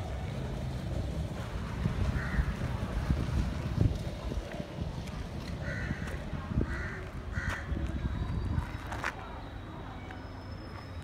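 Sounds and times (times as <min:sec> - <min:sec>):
low microphone rumble: 0:00.0 - 0:08.9
crow cawing: 0:02.2 - 0:02.4, 0:05.6 - 0:06.0, 0:06.7 - 0:07.7.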